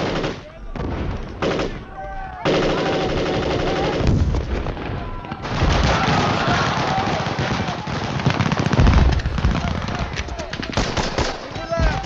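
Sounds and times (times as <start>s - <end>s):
automatic rifle fire: 5.4s - 12.0s.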